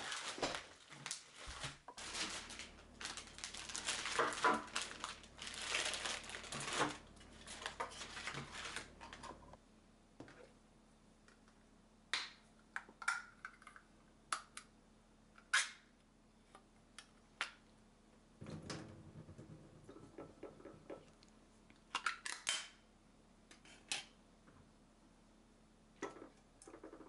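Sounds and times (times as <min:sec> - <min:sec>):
rustling: 0:00.0 - 0:09.4.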